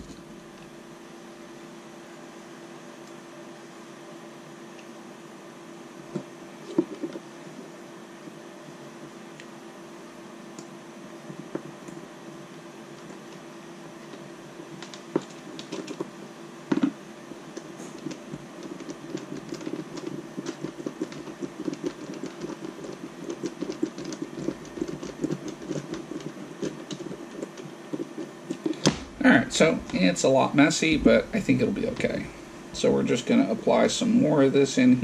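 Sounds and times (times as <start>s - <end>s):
steady low hum: 0.0s - 35.0s
glue gun clicking and scratching: 18.0s - 28.8s.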